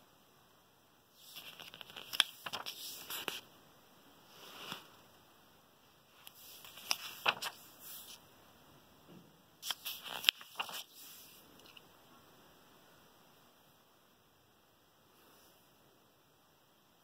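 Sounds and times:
paper pages rustling: 1.2s - 3.4s, 6.2s - 8.2s, 9.6s - 11.8s.

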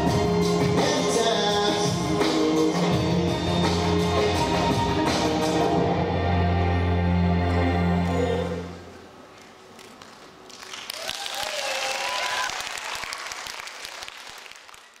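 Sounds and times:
music: 0.0s - 9.1s
audience applauding: 9.8s - 15.0s.

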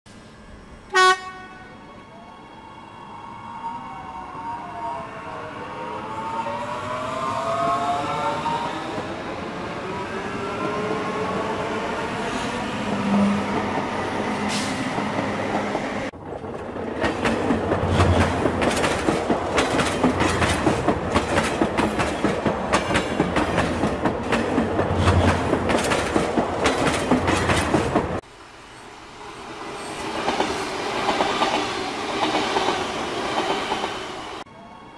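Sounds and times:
train wheels clicking on rail joints: 13.5s - 28.2s.

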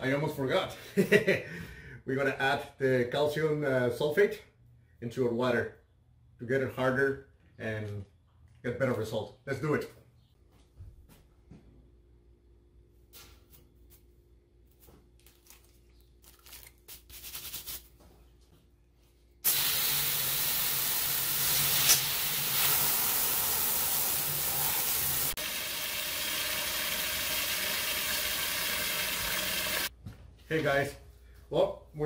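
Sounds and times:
water gushing into metal kettle: 19.5s - 29.9s.

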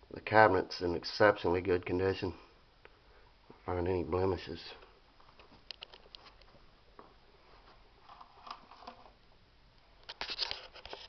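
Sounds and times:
soft rustling: 4.7s - 9.2s.

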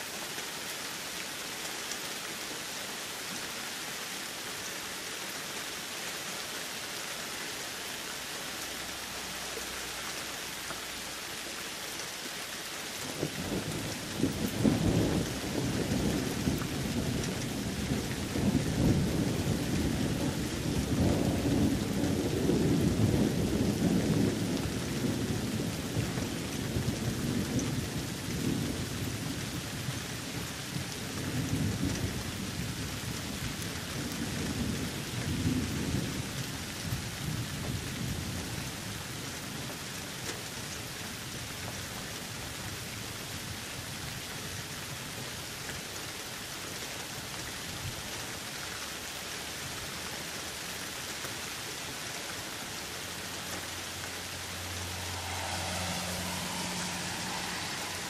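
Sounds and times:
steady rain: 0.0s - 58.0s
low rolling thunder: 13.1s - 38.6s, 53.9s - 58.0s.

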